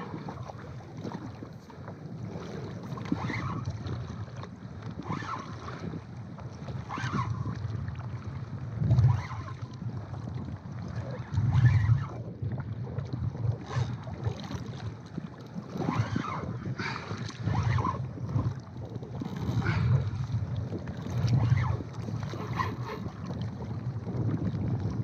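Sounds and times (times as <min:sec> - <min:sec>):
low water rushes: 0:00.0 - 0:25.0
water lapping against a kayak hull: 0:00.0 - 0:25.0
wind buffeting microphone: 0:00.0 - 0:25.0.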